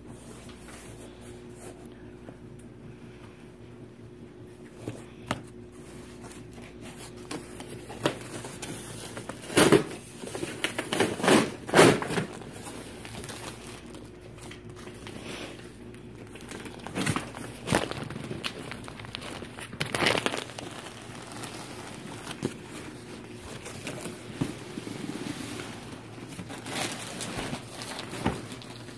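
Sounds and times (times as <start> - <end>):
plastic crinkling: 5.8 - 28.9.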